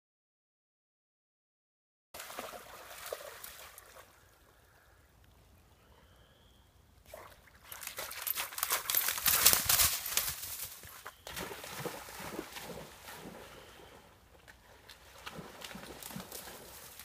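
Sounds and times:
dog splashing through water: 2.2 - 4.1, 11.2 - 14.0, 14.8 - 17.0.

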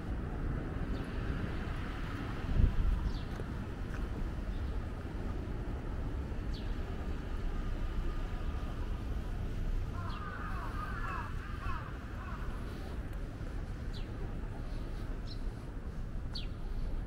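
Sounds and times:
low city rumble: 0.0 - 17.0.

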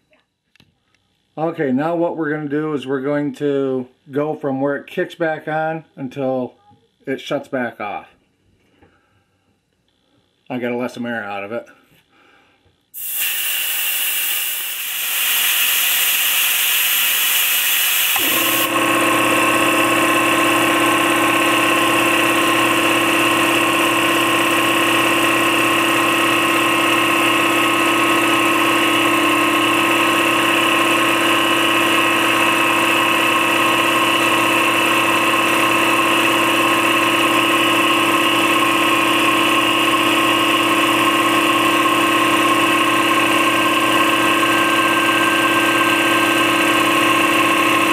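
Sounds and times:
air compressor pump running: 12.2 - 47.9
compressed air hissing: 12.9 - 18.7.

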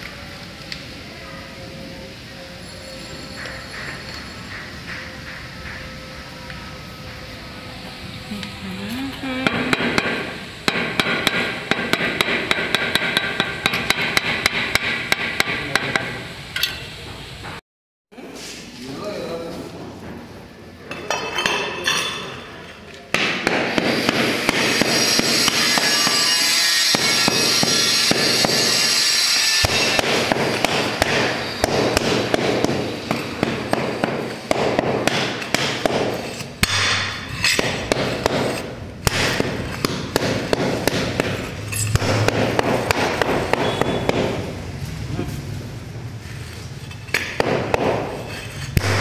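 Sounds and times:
steady dense noise: 0.0 - 17.6, 18.2 - 49.0
trowel scraping on marble: 36.1 - 38.7, 48.0 - 49.0.

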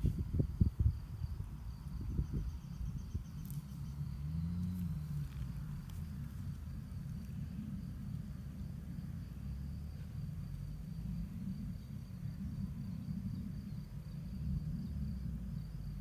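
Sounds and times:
faint high insect trill: 0.0 - 16.0
low rumble on microphone: 0.0 - 16.0.

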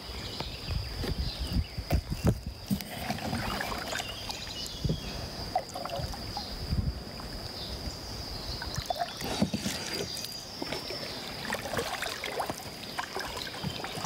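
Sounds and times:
paddle splashes and drips: 2.7 - 4.8, 5.5 - 6.5, 8.6 - 14.0.

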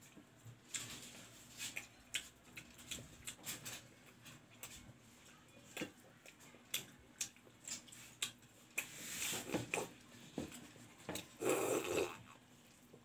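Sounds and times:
slurping broth: 11.4 - 12.2
gulp: 11.4 - 12.4.

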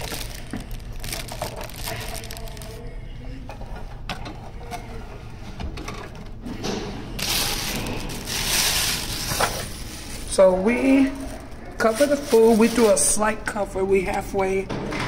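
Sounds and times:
rustling: 7.2 - 13.2.

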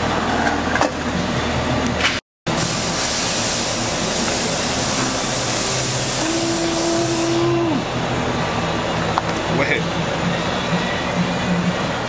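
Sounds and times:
steady hiss: 2.6 - 7.6.

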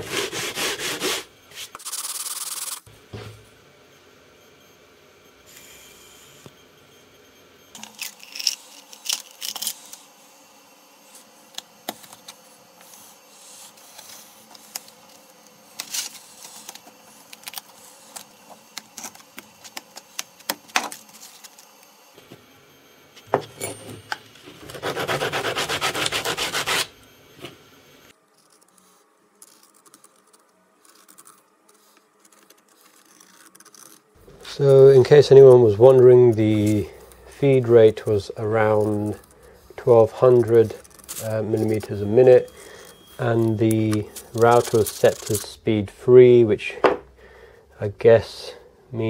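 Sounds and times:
sandpaper rubbing strokes: 0.0 - 2.9, 11.0 - 20.4, 24.6 - 27.0, 28.4 - 45.6.

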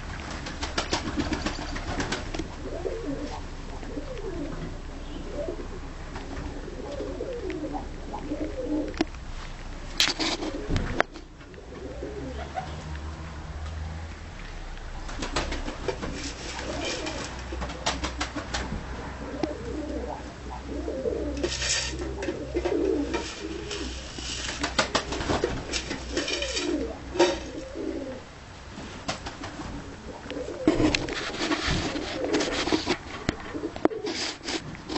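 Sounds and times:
pigeons cooing: 1.0 - 9.1, 10.2 - 12.9, 15.2 - 28.3, 29.6 - 34.4
sharp clicks and rustles: 8.9 - 11.6, 12.6 - 18.8, 21.4 - 27.8, 28.8 - 34.9.

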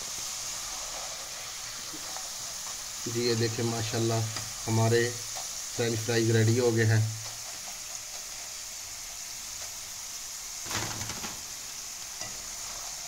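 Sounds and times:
fries sizzling in hot oil: 0.0 - 13.0.

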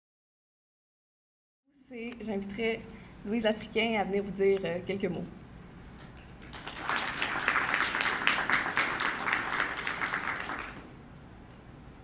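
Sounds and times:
audience applauding: 6.4 - 11.0.

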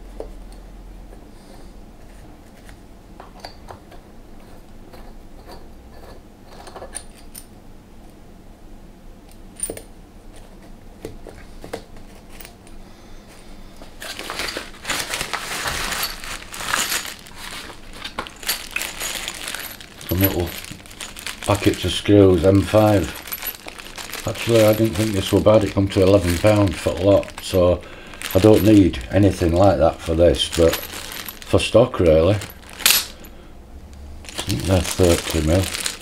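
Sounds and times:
small metal parts clinking: 4.4 - 7.5, 14.0 - 33.3, 34.2 - 36.0
plastic packets of screws rattling: 14.0 - 33.3, 34.2 - 36.0.

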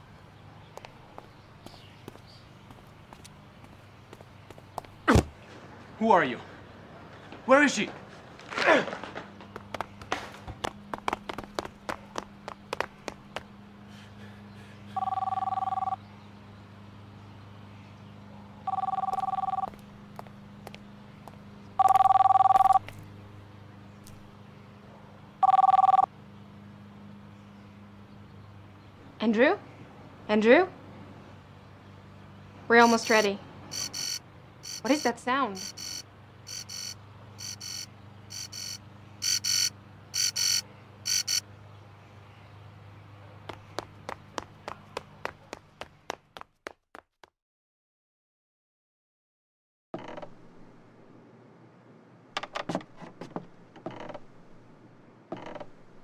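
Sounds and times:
mobile phone ringing: 15.0 - 16.0, 18.7 - 19.8, 21.8 - 22.9, 25.4 - 26.1, 32.8 - 41.4.

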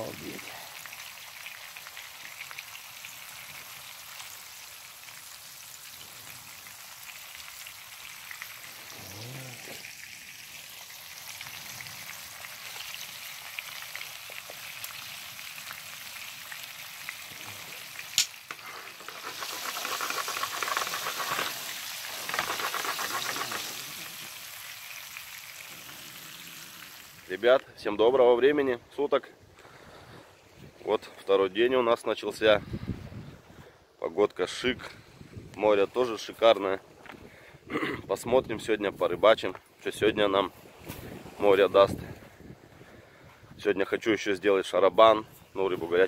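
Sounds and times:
fish frying in oil: 0.0 - 27.4.

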